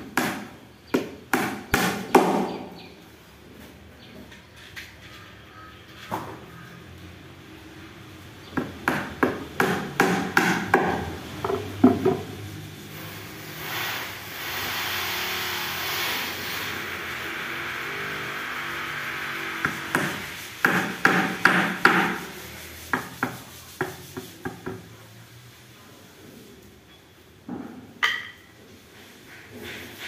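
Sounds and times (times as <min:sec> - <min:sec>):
steady hissing noise: 0:07.3 - 0:26.8
hammer knocking on wooden box: 0:08.6 - 0:12.2.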